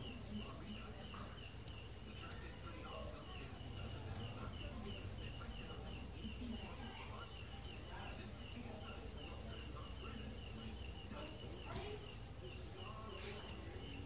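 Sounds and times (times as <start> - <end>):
faint repeated chirping: 0.0 - 14.0
sharp high clicks: 1.5 - 5.4, 6.2 - 6.7, 7.5 - 8.0, 13.4 - 13.9.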